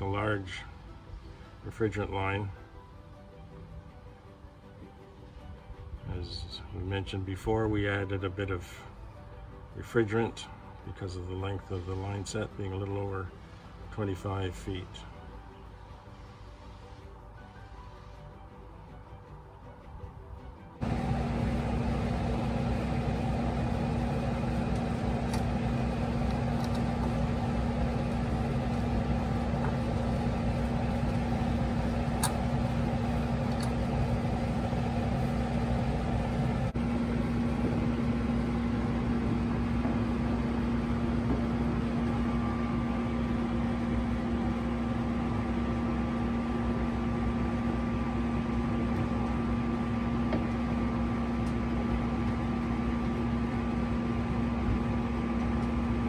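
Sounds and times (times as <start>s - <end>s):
steady machine hum: 20.8s - 56.0s.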